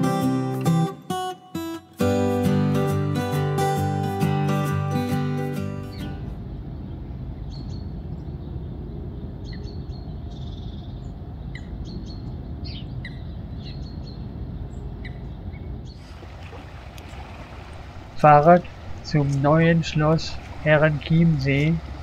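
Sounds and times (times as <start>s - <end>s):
low background rumble: 6.2s - 22.0s.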